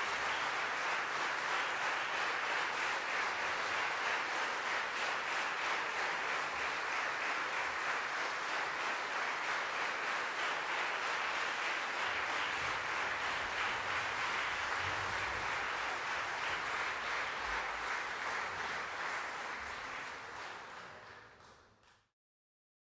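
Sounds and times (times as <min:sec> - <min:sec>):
audience applauding: 0:00.0 - 0:22.1.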